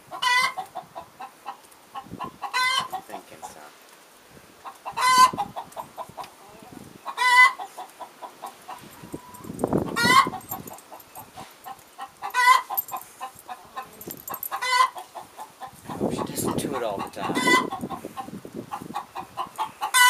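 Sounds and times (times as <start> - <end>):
hen clucking: 0.1 - 3.6, 4.6 - 20.0
hen squawking: 15.9 - 18.0.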